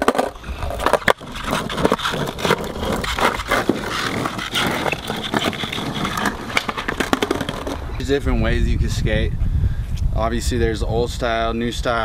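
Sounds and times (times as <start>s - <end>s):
skateboard clacking on pavement: 0.0s - 7.8s
skateboard rolling on concrete: 0.0s - 8.6s.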